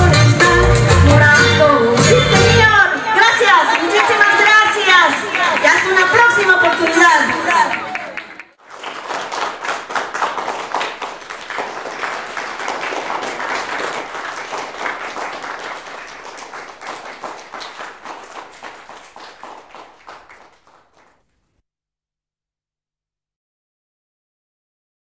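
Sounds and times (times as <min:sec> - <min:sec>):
audience applauding: 0:03.4 - 0:21.2.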